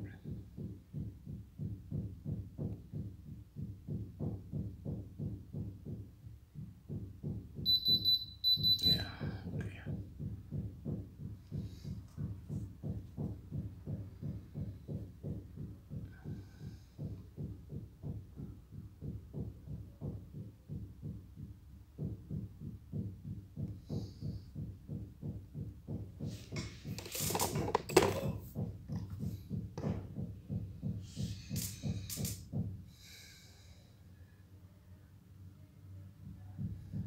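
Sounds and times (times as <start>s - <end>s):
clattering handling noise: 26.3s - 29.1s.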